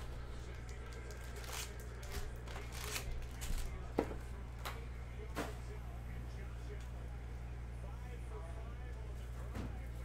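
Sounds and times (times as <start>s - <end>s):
foil card packs crinkling: 0.4s - 3.8s.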